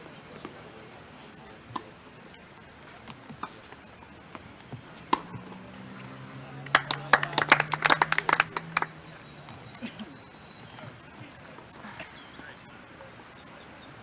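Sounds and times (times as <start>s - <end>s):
spectators clapping: 6.6s - 9.1s.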